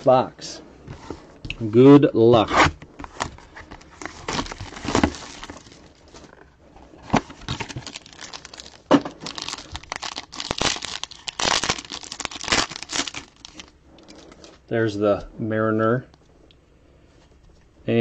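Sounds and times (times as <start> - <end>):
foil wrapper crinkling: 3.7 - 6.4, 7.1 - 14.6.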